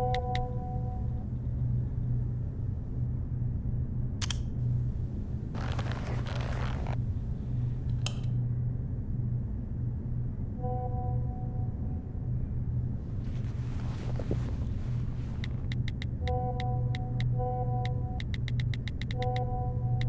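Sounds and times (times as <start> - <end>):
steady low hum: 0.0 - 20.0
rustling noise: 5.5 - 7.9, 13.0 - 15.9.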